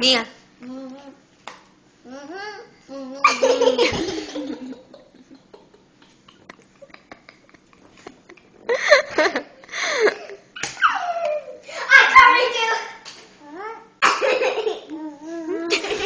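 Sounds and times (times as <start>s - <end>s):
girls laughing and giggling: 3.2s - 11.9s, 15.5s - 16.0s.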